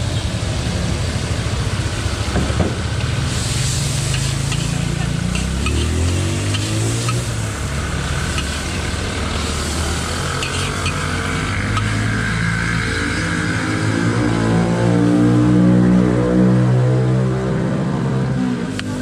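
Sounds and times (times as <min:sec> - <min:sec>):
food sizzling in a wok: 0:02.8 - 0:12.0
metal spatula scraping: 0:03.6 - 0:07.3, 0:10.4 - 0:11.0.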